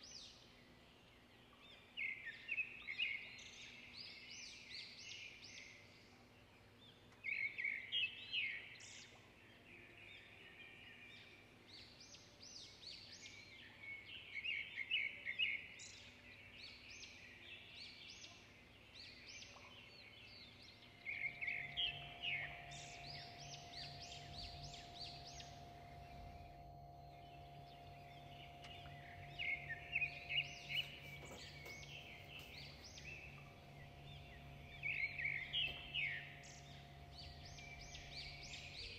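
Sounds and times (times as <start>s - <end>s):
faint steady hum: 0.0s - 38.9s
small birds chirping: 0.0s - 38.9s.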